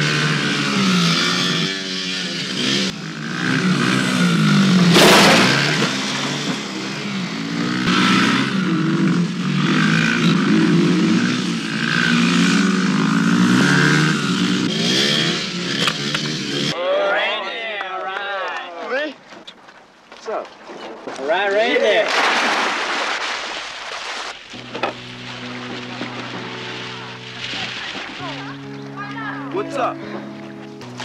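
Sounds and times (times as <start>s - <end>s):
dirt bike engines revving: 0.0s - 19.6s, 24.5s - 31.0s.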